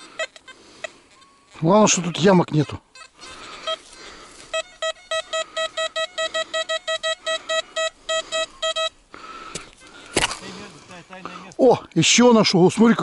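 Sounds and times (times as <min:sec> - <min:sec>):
metal detector beeps: 0:04.5 - 0:09.0.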